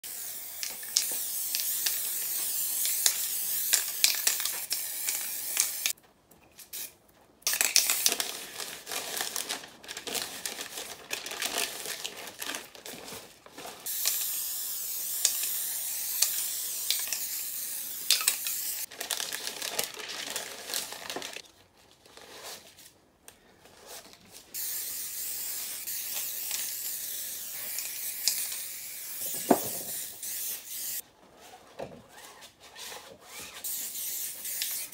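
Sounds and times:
spray paint cans hissing: 0.0s - 6.0s, 6.6s - 8.1s, 13.8s - 18.9s, 24.6s - 31.0s, 33.6s - 34.9s.

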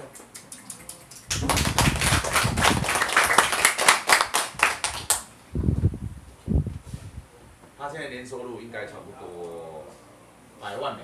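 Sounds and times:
people clapping: 0.4s - 5.3s.

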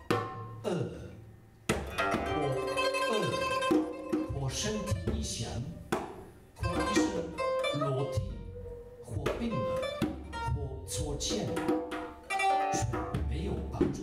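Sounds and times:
lute plucked and strummed: 0.0s - 14.0s.

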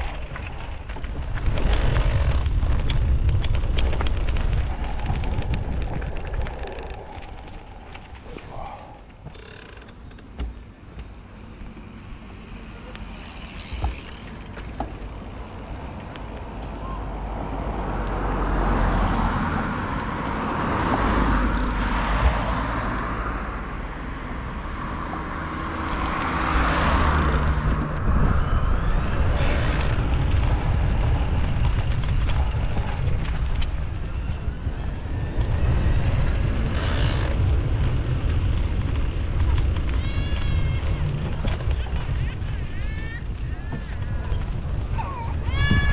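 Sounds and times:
wind rush: 0.0s - 9.3s, 13.2s - 45.9s
bike tyre rumble: 0.0s - 45.9s.

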